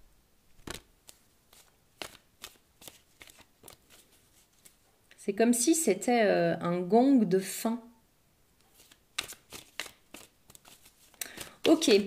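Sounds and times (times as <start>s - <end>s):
cards being shuffled: 0.5s - 4.8s, 8.6s - 12.0s.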